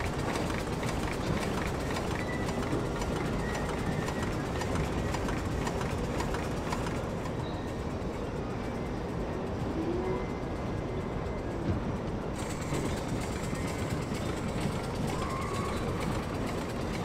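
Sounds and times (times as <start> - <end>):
steam engine running: 0.0 - 8.1, 12.2 - 17.0.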